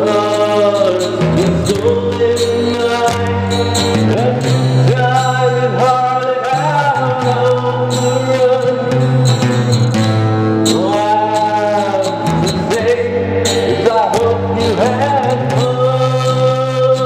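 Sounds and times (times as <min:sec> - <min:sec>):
man singing long held notes: 0:00.0 - 0:09.4, 0:10.7 - 0:17.0
sustained instrumental backing: 0:07.2 - 0:15.2.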